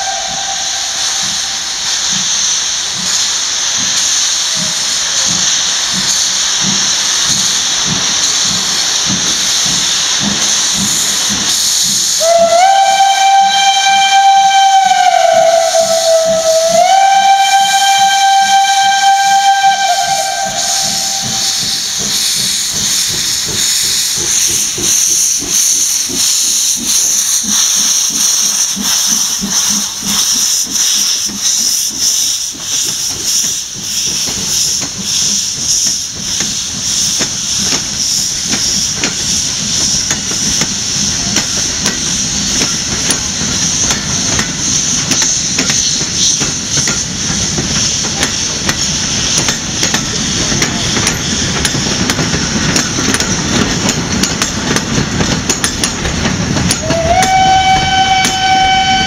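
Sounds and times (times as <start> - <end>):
steam locomotive whistle: 0.0 - 1.3, 11.9 - 21.7, 56.4 - 59.0
hiss of steam: 0.0 - 59.0
rhythmic steam exhaust beats: 0.0 - 59.0
train coaches rolling: 0.0 - 59.0.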